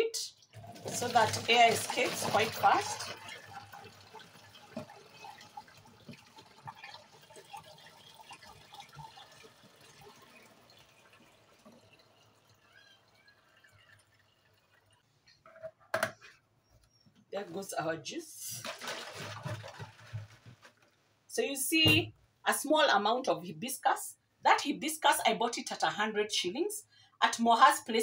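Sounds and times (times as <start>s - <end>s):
juice trickling through a funnel: 0.3s - 15.4s, 18.4s - 21.0s.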